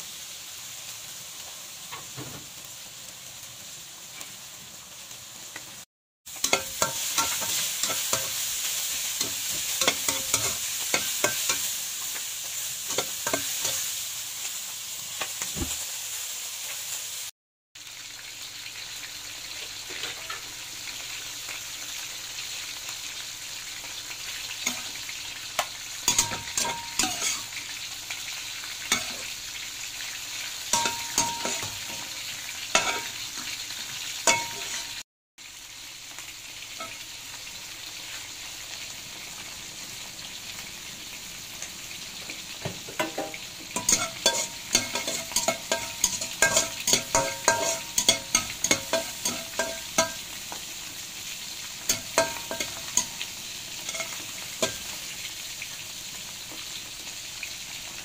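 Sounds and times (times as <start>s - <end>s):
vegetables sizzling in hot oil: 0.0s - 58.0s
spatula scraping a wok: 6.3s - 14.1s, 19.8s - 20.5s, 26.1s - 27.6s, 28.9s - 29.3s, 30.7s - 32.1s, 32.7s - 33.6s, 34.3s - 35.0s, 43.0s - 50.3s, 51.9s - 55.1s.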